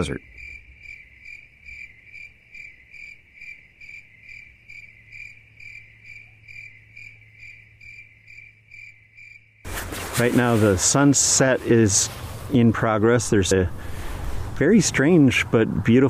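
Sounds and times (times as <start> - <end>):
cricket chirping: 0.0 - 10.5.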